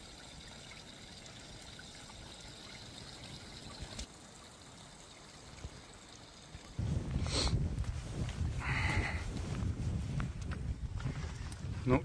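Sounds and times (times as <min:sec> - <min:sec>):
water trickling and splashing: 0:00.0 - 0:11.8.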